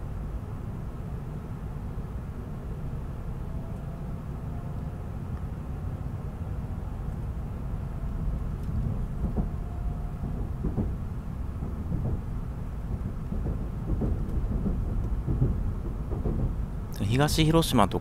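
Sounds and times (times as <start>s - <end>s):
train rumbling inside cabin: 0.0s - 18.0s
train car knocks and creaks: 8.2s - 17.6s.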